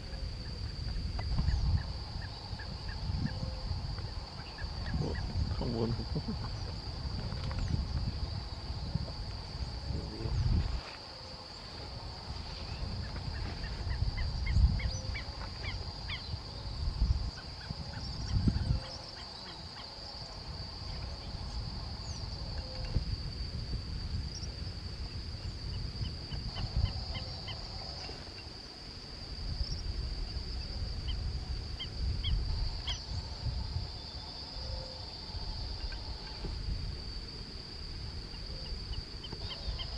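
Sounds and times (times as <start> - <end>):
high-pitched insect drone: 0.0 - 39.9
birds calling: 38.3 - 39.9.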